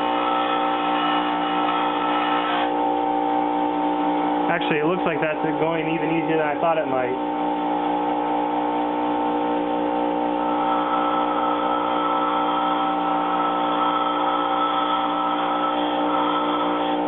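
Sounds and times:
steel hissing on grinding wheel: 0.0 - 2.8, 10.4 - 17.0
bench grinder motor: 0.0 - 17.0.

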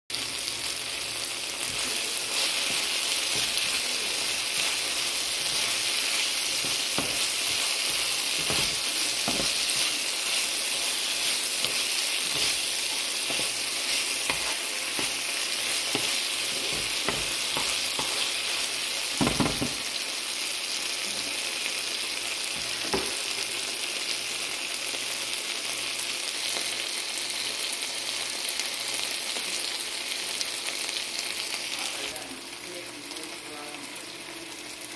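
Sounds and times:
vegetables and meat sizzling: 0.1 - 34.9
spatula stirring and scraping: 1.4 - 18.9.

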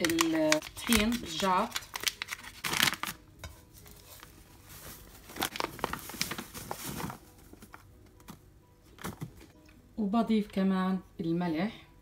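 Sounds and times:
paper bag crinkling: 0.0 - 3.2, 3.9 - 7.8.

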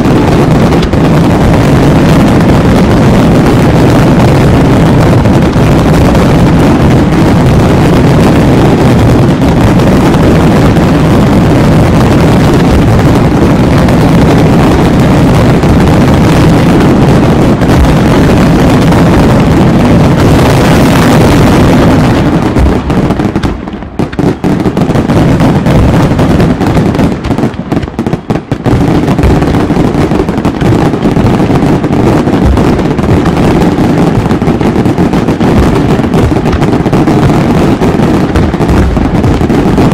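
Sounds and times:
fireworks bursting: 0.0 - 39.9.

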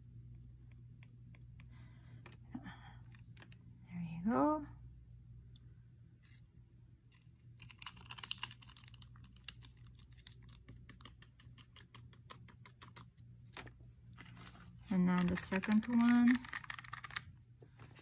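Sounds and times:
foil pouch crinkling: 7.6 - 18.0.

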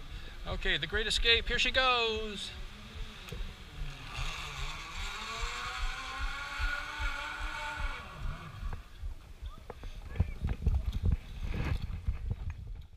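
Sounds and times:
wind rumble on microphone: 2.2 - 12.9
pulleys whining along a cable: 2.6 - 8.9.

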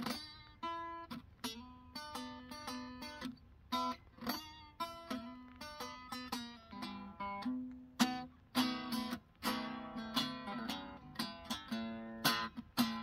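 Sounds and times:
acoustic guitar: 0.0 - 13.0.

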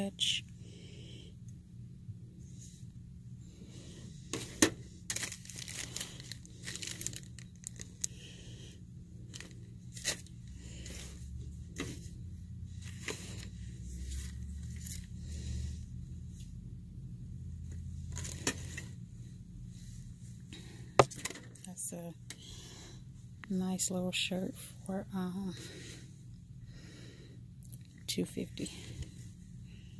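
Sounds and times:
steady low hum: 0.0 - 29.9
rustling and crinkling: 4.2 - 8.2, 9.2 - 15.4, 17.7 - 19.0.

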